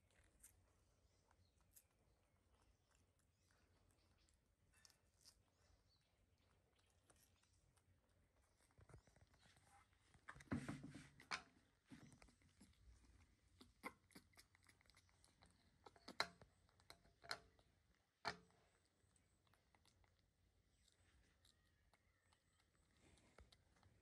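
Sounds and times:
faint tearing of food being peeled: 0.0 - 10.4.

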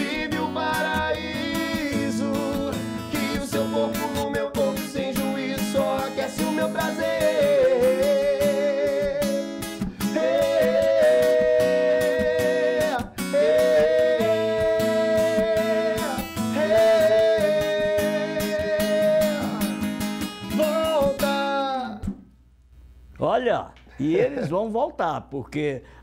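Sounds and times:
men singing in harmony: 0.0 - 19.9
acoustic guitar: 0.0 - 22.4.

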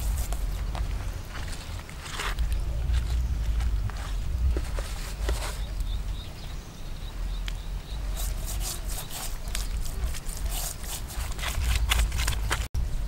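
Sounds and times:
steady low rumble: 0.0 - 8.2
short scraping strokes: 8.1 - 12.4
hands rubbing fish skin: 8.1 - 12.7.

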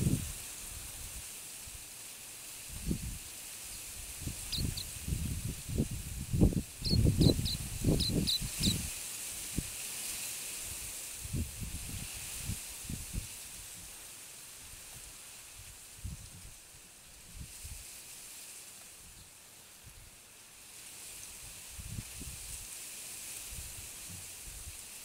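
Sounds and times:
steady hiss: 0.0 - 25.0
bird giving high chirps: 4.4 - 5.0, 6.8 - 8.8.

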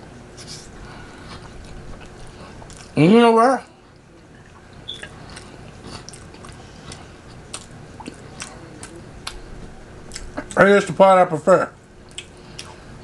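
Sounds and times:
chewing and biting: 1.1 - 3.0, 3.9 - 10.6, 12.0 - 12.8.

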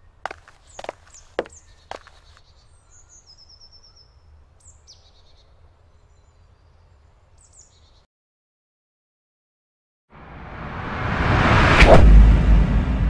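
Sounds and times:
songbirds calling: 0.0 - 8.1
steady low rumble: 10.2 - 13.0.

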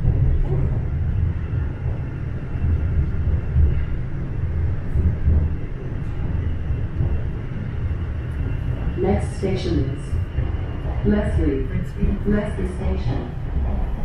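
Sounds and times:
subway train rumbling in tunnel: 0.0 - 14.0.

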